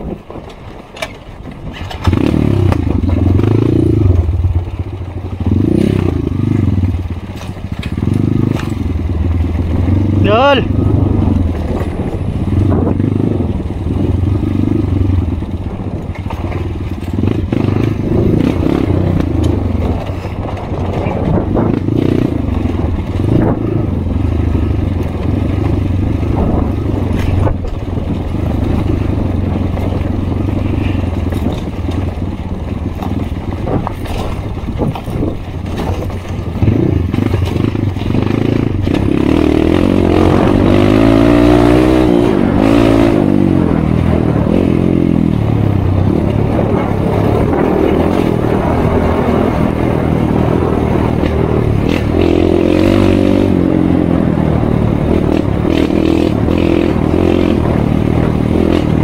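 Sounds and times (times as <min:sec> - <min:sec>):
stones and chassis clattering: 0:00.0 - 0:09.8, 0:15.2 - 0:23.4, 0:24.9 - 0:39.2
dirt bike engine: 0:00.0 - 0:59.0.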